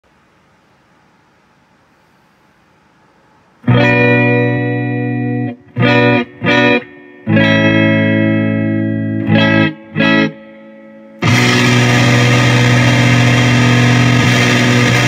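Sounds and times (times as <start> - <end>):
electric guitar chords: 3.6 - 15.0.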